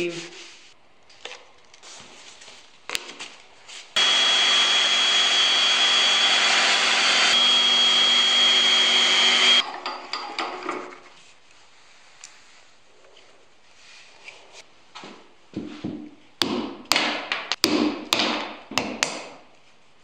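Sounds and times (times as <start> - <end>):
electric sander hissing and whining: 4.0 - 9.6.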